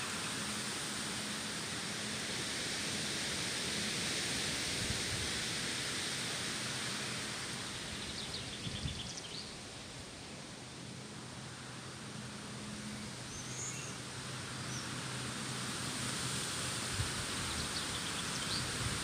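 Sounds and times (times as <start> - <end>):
steady outdoor hiss: 0.0 - 19.0.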